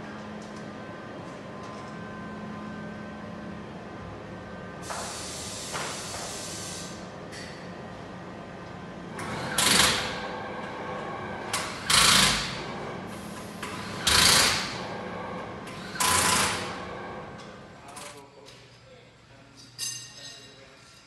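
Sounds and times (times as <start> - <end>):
steady workshop hum: 0.0 - 21.0
compressed air hissing: 4.8 - 7.0.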